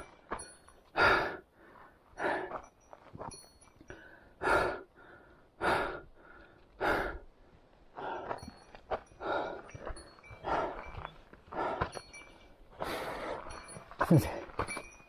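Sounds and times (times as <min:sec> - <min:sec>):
person panting heavily: 0:00.8 - 0:02.6, 0:03.9 - 0:07.3, 0:07.9 - 0:12.1, 0:12.7 - 0:13.6.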